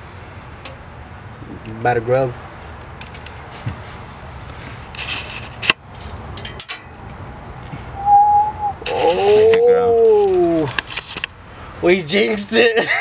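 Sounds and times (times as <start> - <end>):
person whistling: 8.0 - 8.9
person saying ooh: 8.0 - 10.7.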